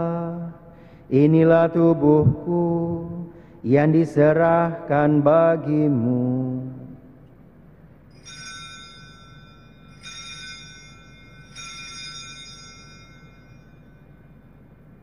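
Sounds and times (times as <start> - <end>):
altar bells ringing: 8.1 - 15.0.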